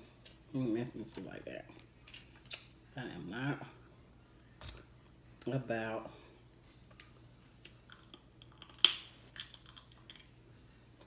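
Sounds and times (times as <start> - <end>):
crab shell clicking: 8.1 - 10.2.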